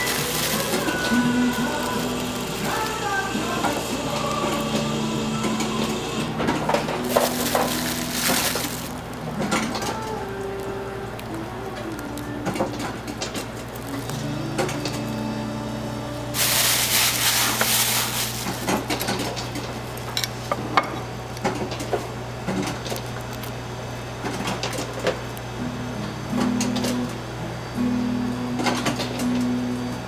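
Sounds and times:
loud hiss: 0.0s - 6.4s, 16.4s - 18.9s
low hum: 0.0s - 19.0s.

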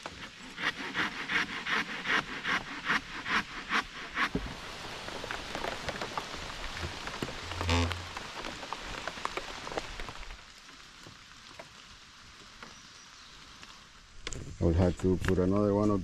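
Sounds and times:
rain drops ticking: 4.6s - 16.0s.

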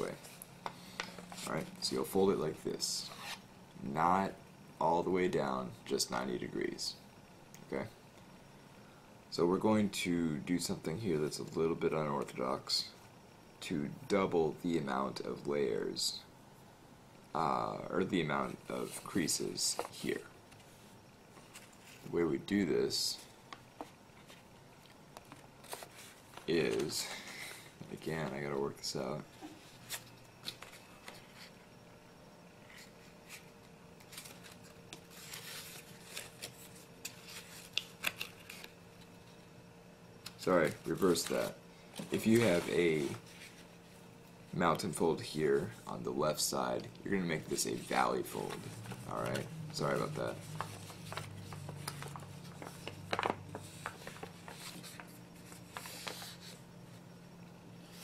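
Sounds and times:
steady low hum: 0.0s - 58.0s
paper rustling and crinkling: 23.2s - 28.4s, 32.7s - 38.8s, 40.4s - 43.7s, 47.5s - 56.6s.

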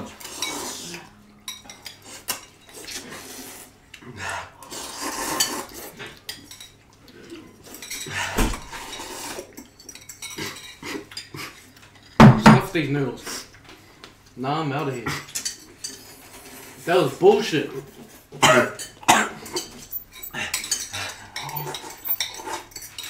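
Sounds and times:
utensils clinking against bowls: 0.0s - 3.2s, 4.9s - 12.2s, 14.8s - 17.2s, 17.9s - 23.0s.

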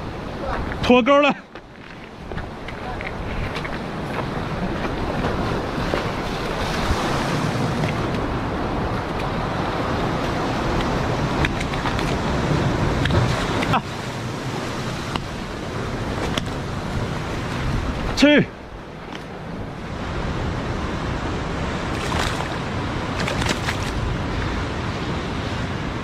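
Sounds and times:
surf washing against rocks: 0.0s - 26.0s
wind buffeting microphone: 1.6s - 26.0s.

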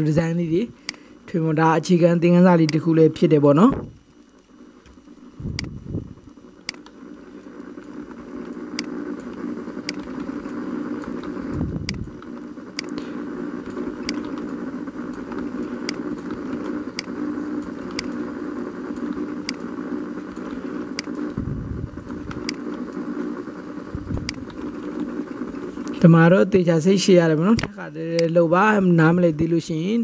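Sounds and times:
steady hum: 0.0s - 30.0s
keyboard and mouse clicks: 14.0s - 18.2s.

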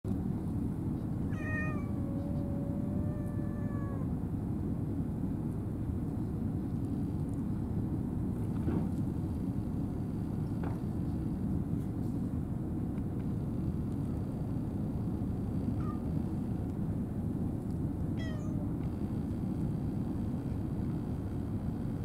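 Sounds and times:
steady low rumble: 0.1s - 22.0s
cat meowing: 1.3s - 4.2s, 15.7s - 16.1s, 18.2s - 18.7s.

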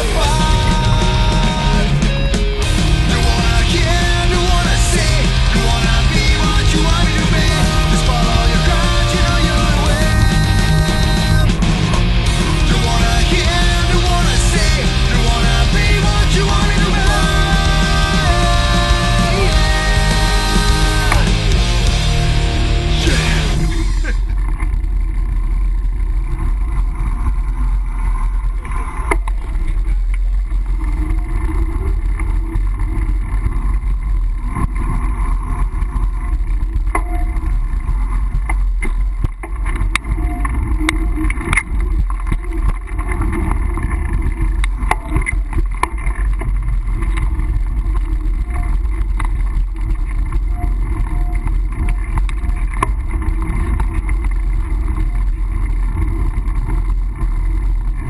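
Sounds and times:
bike rattling clicks and knocks: 24.3s - 58.0s.

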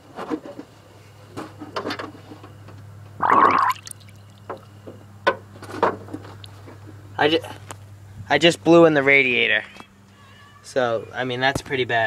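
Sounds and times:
coolant splashing: 3.2s - 4.6s.

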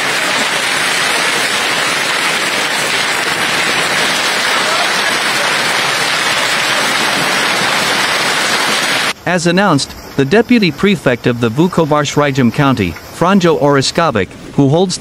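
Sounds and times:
heavy hail and rain: 0.0s - 9.2s.

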